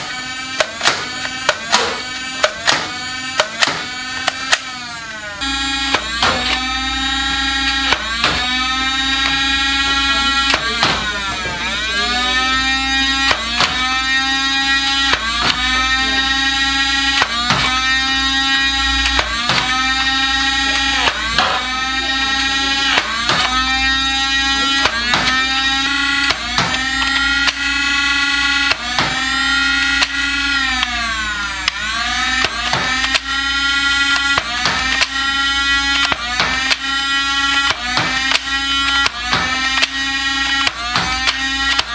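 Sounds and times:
blaster flywheel motor whine: 0.0 - 41.9
dart firing clicks: 0.6 - 4.7.

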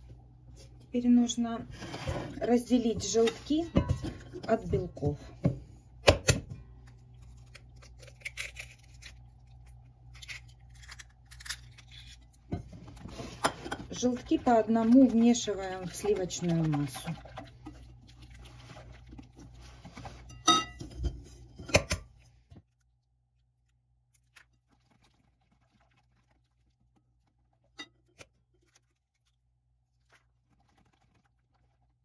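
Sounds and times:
whisk stirring batter in bowl: 13.0 - 20.4.

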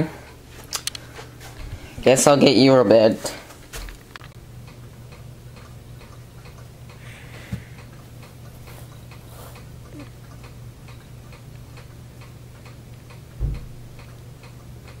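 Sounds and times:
regular ticking: 4.1 - 7.1, 7.7 - 15.0
thump: 13.4 - 13.7.

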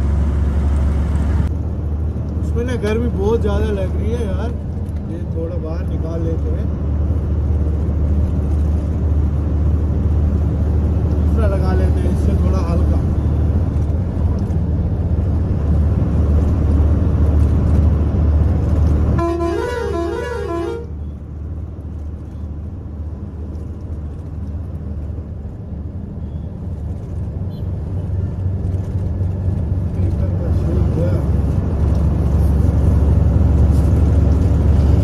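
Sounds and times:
truck engine droning: 0.0 - 35.0.

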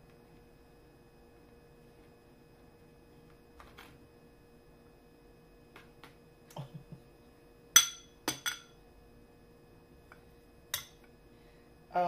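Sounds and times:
metal spoon clinking on glass bowl: 7.8 - 8.7, 10.8 - 11.0.

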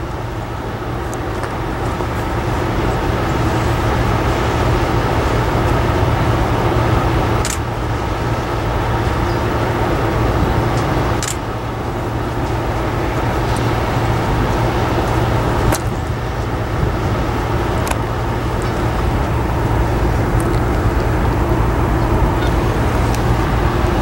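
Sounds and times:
diesel locomotive engine drone: 0.0 - 24.0.

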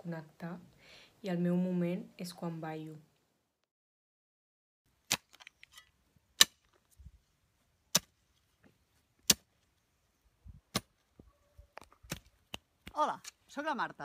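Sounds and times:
hoe striking dry soil: 5.0 - 6.9, 7.9 - 8.3, 9.2 - 9.6, 10.7 - 11.0.

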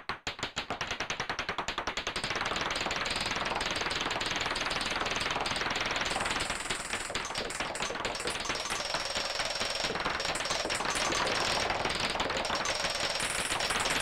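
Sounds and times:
clicking electronic synth pulses: 6.0 - 14.0.

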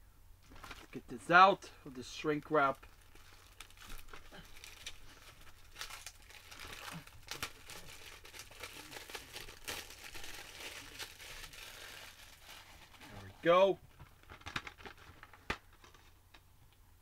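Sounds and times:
plastic wrap crinkling: 0.4 - 1.2, 1.9 - 16.2
plastic wrap snapping: 2.7 - 12.8, 14.0 - 16.0.

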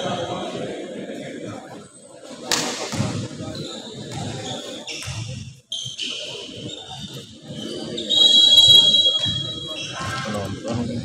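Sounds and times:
voices of players and spectators: 0.0 - 11.0
shoe squeaks: 3.5 - 10.3.

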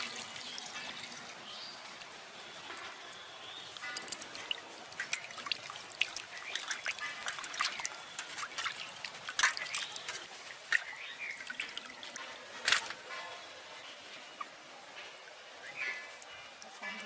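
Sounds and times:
water splashing in steel bowl: 3.7 - 13.1.

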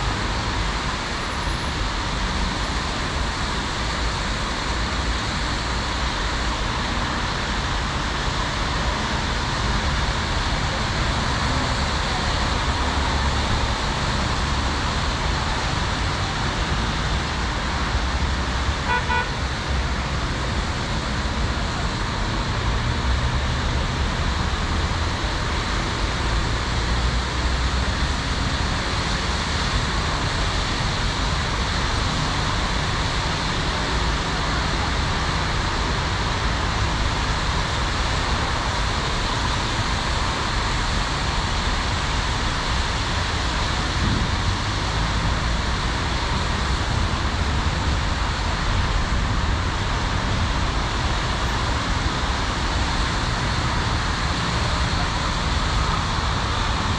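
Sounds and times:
road traffic noise: 0.0 - 56.9
car horn toots: 18.8 - 19.4.

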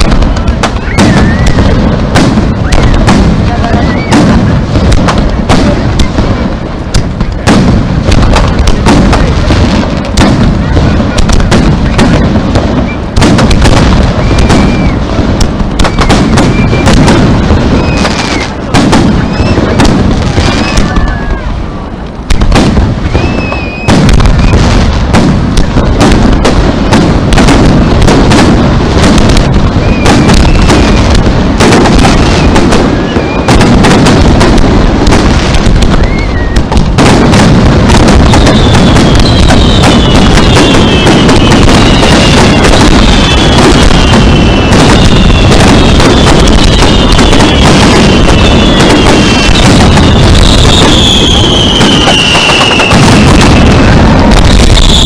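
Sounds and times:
firework shells bursting: 0.0 - 55.0.

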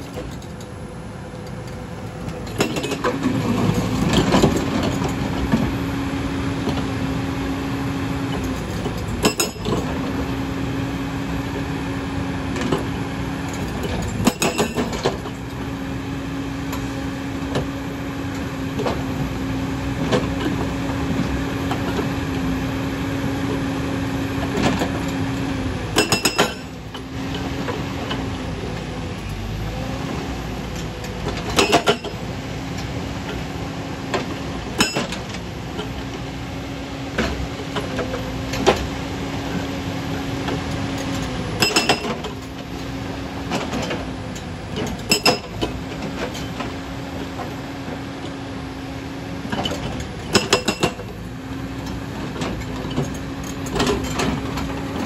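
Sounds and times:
excavator engine running: 0.0 - 55.0
hydraulic breaker pounding stone: 8.8 - 9.9, 13.6 - 15.3, 25.9 - 26.9, 34.7 - 35.5, 41.6 - 42.5, 44.7 - 46.8, 49.6 - 51.1.

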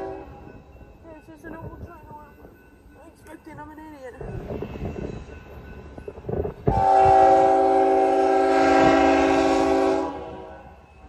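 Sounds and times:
low rumble of approaching train: 0.0 - 11.0
locomotive air horn blast: 6.7 - 10.8.

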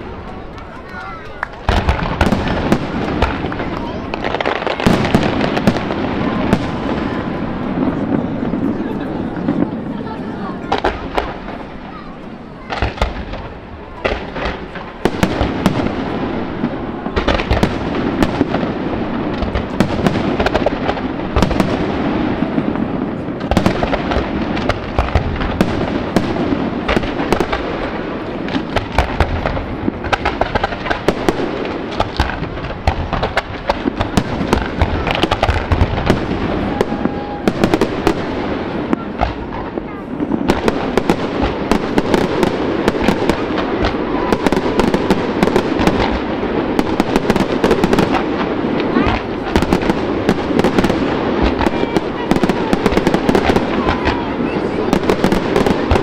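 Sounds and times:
aerial fireworks bursting: 0.0 - 56.0
fireworks crackling: 0.0 - 56.0.

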